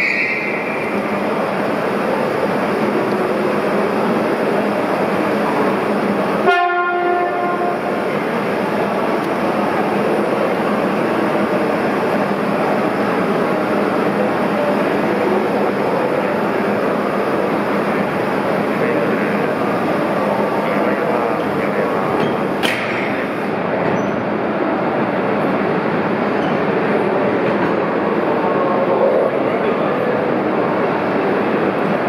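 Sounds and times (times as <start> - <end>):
train running noise: 0.0 - 32.0
train horn blast: 6.4 - 7.9.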